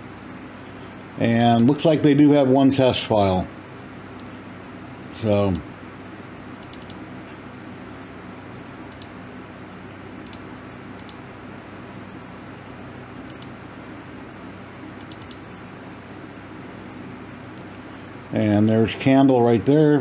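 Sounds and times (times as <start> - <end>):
low room tone hum: 0.0 - 20.0
computer mouse clicks: 6.6 - 7.4, 8.9 - 11.2, 13.2 - 13.6, 15.0 - 15.9.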